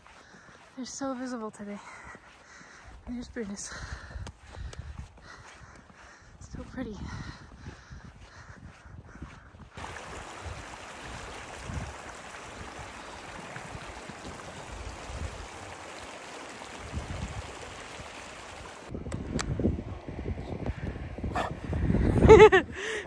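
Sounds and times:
creek water rushing over stones: 0:09.8 - 0:18.9.

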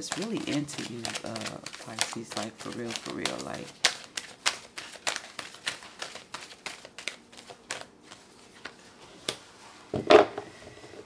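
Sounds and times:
cards being shuffled: 0:00.0 - 0:09.4.

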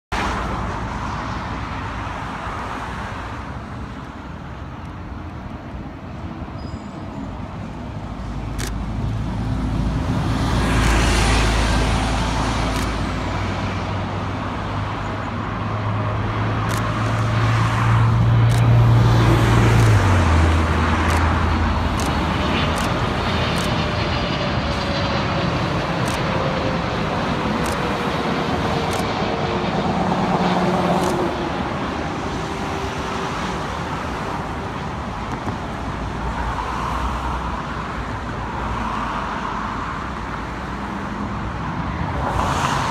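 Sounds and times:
road traffic: 0:00.1 - 0:42.9
jet airliner passing overhead: 0:00.2 - 0:42.9.

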